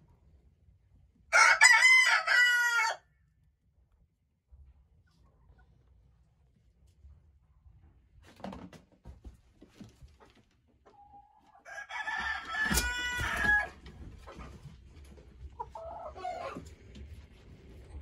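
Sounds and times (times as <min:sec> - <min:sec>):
rooster crowing: 0:01.3 - 0:03.0, 0:11.6 - 0:13.8
hen clucking: 0:15.4 - 0:16.9.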